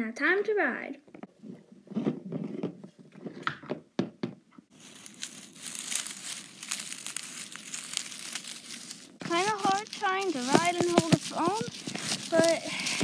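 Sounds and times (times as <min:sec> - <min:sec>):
dry grass and leaves rustling: 0:04.7 - 0:13.0
handling knocks: 0:09.4 - 0:13.0.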